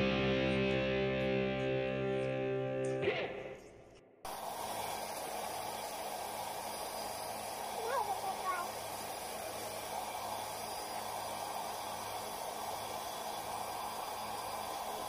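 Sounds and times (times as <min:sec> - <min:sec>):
background music: 0:00.0 - 0:03.7
hair dryer blowing: 0:04.3 - 0:15.0.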